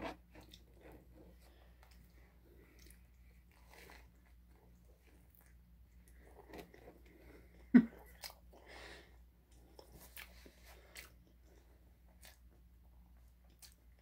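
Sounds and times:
person chewing food: 0.0s - 14.0s.

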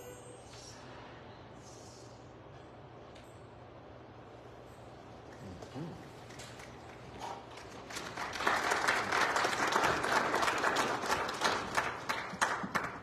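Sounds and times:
congregation applauding: 6.2s - 13.0s.

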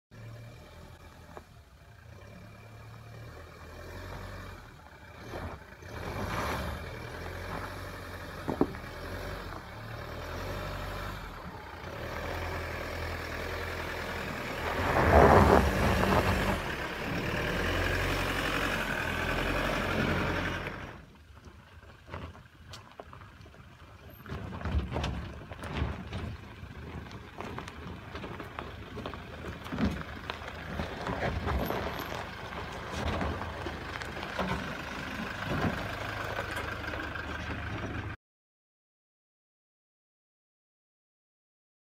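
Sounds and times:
truck engine labouring: 0.1s - 38.2s
tyres crunching on stones: 21.1s - 36.6s.

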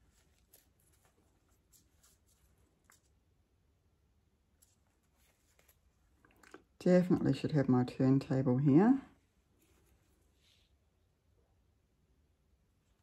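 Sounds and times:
faint soft clicks: 5.6s - 6.7s.

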